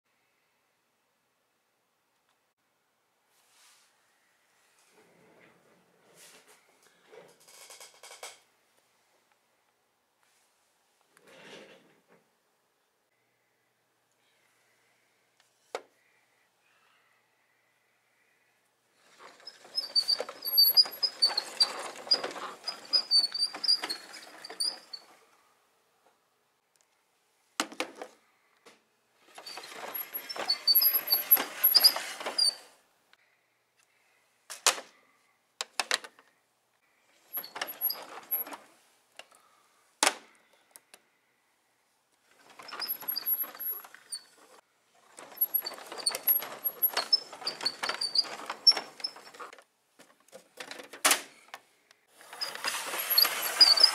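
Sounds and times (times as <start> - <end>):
high squeaks: 19.0 - 25.1, 29.3 - 32.7, 42.4 - 44.6, 45.3 - 49.5, 52.3 - 53.9
toy truck rolling on play mat: 19.0 - 25.3, 29.2 - 32.7, 37.2 - 38.7, 42.3 - 50.8, 52.0 - 53.9.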